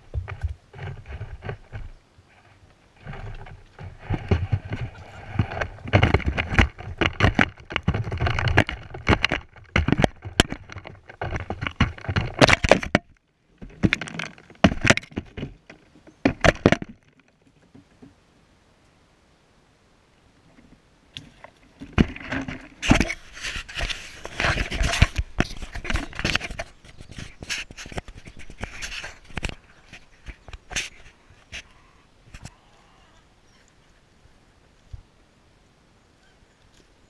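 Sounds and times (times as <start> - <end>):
hens pecking in dry leaves: 0.0 - 16.6.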